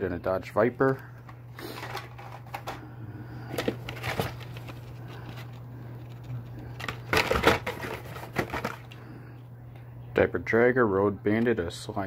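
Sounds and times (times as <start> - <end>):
steady low hum: 0.0 - 12.0
plastic blister packs rustling: 0.8 - 2.8, 3.4 - 9.0.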